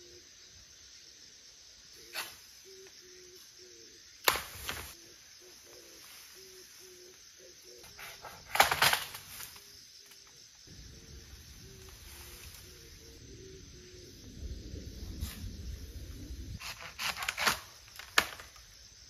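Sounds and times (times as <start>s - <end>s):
bamboo cracking: 4.2s - 4.9s, 8.5s - 10.3s, 16.6s - 18.7s
leafy stalks rustling: 4.2s - 7.2s, 8.4s - 13.2s.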